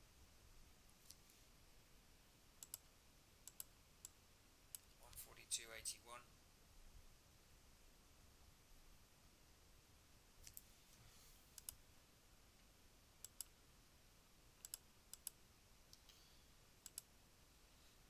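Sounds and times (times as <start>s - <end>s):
faint room hiss: 0.0s - 18.0s
computer mouse clicking: 2.6s - 5.0s, 11.6s - 11.8s, 13.2s - 13.5s, 14.6s - 16.0s, 16.8s - 17.1s.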